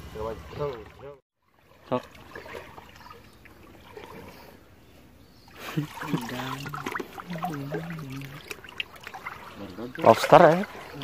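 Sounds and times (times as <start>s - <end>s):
water splashing and trickling: 0.0s - 11.0s
low male voice wavering: 6.0s - 8.4s.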